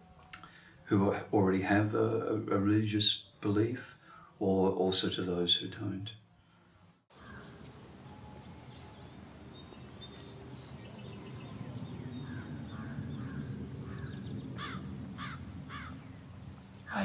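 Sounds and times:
low background noise: 0:00.0 - 0:17.0
crow cawing: 0:07.1 - 0:07.6, 0:12.2 - 0:16.0.

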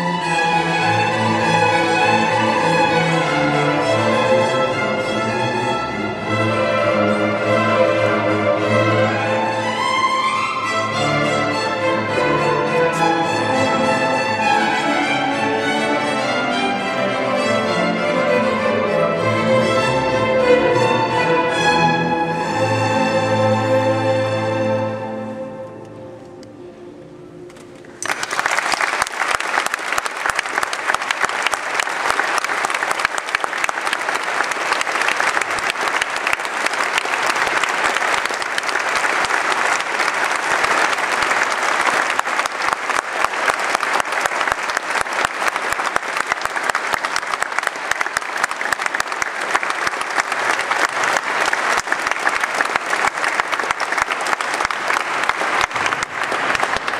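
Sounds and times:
audience applauding: 0:27.8 - 0:56.9.

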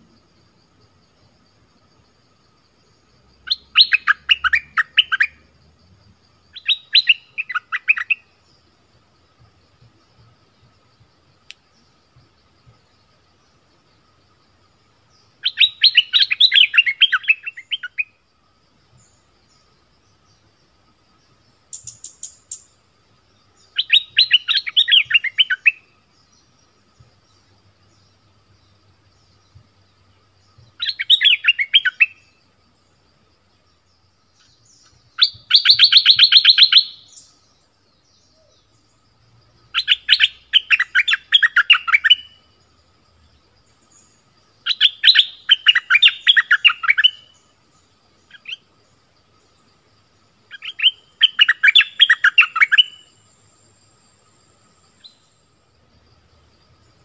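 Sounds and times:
bulbul singing: 0:06.5 - 0:08.7, 0:15.0 - 0:18.2, 0:21.7 - 0:22.8, 0:23.4 - 0:32.4, 0:34.3 - 0:38.9, 0:43.7 - 0:47.5.

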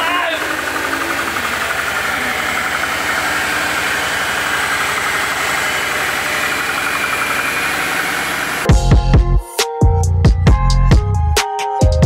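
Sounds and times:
car engine idling: 0:00.0 - 0:08.8.

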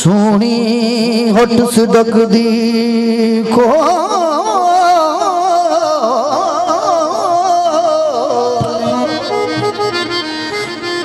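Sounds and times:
instrumental drone: 0:03.0 - 0:11.0
man singing a held note: 0:03.5 - 0:09.6.

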